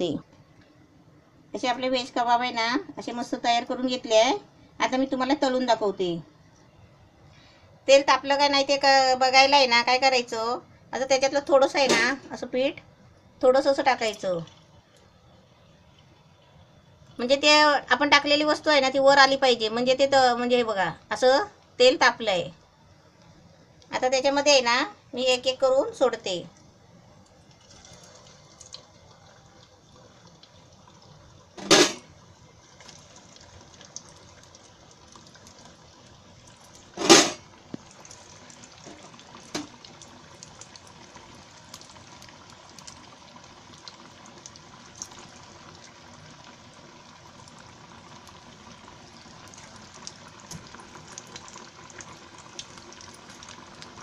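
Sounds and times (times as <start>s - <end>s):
oil sizzling with crackles: 0.0s - 54.0s
patties deep-frying in hot oil: 1.5s - 6.8s, 13.4s - 54.0s.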